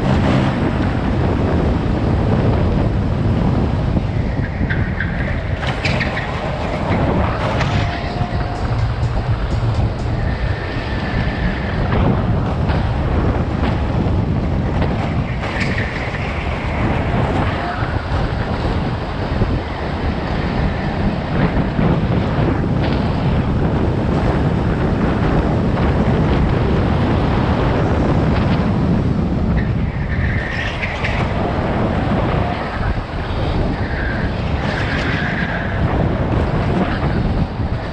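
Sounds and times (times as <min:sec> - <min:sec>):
go-kart drive noise: 0:00.0 - 0:37.9
wind on microphone: 0:00.0 - 0:37.9
tyre squeals: 0:04.4 - 0:09.3.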